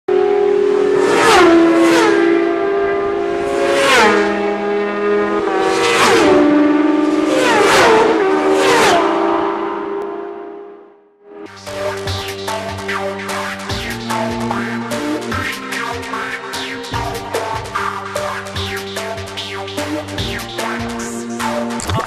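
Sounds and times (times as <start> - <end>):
racing engines sweeping past: 0.1 - 10.9.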